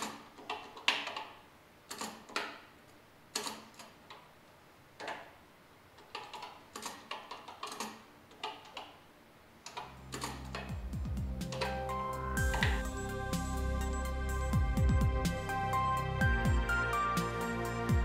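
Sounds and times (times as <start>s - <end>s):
low background music: 9.6s - 18.0s.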